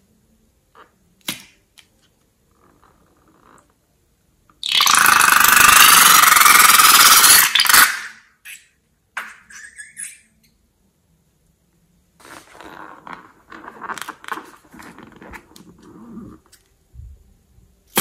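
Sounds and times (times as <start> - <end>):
balloon sputtering: 4.6 - 8.2.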